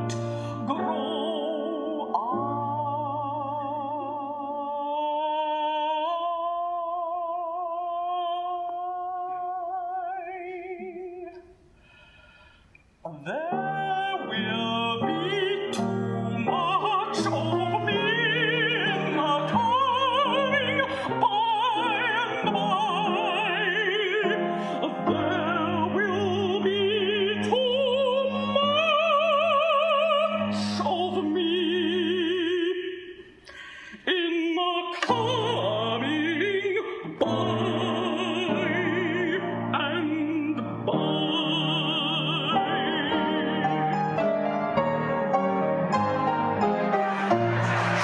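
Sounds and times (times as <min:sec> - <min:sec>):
contralto singing with vibrato: 0:00.0 - 0:11.4, 0:13.1 - 0:33.2, 0:34.0 - 0:48.0
instrumental accompaniment: 0:42.5 - 0:48.0.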